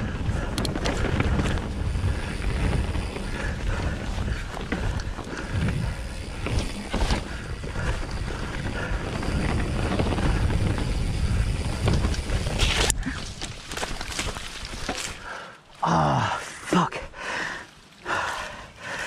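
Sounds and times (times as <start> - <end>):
wind buffeting microphone: 0.0 - 13.6
bike knocks and rattles: 0.0 - 15.3
bike tyres rumbling on dirt: 0.0 - 16.0.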